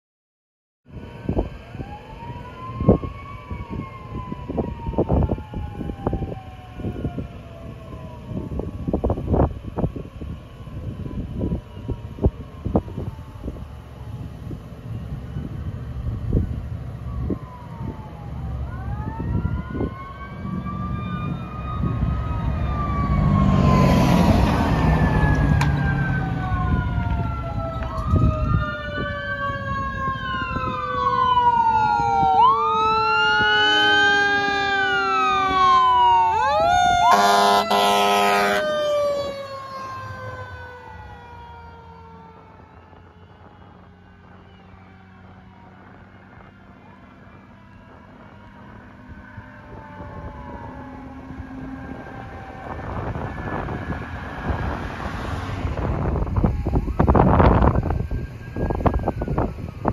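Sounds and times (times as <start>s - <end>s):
fire engine sirens wailing: 0.9s - 59.9s
truck rushing past: 12.9s - 59.9s
air horn blast: 37.0s - 38.7s.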